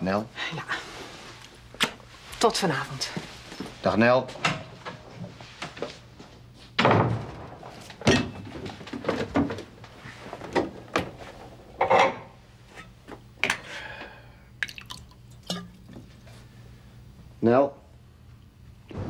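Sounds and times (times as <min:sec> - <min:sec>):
door banging shut: 0:06.8 - 0:08.3
kitchen things clanking: 0:08.0 - 0:09.6, 0:11.8 - 0:13.7.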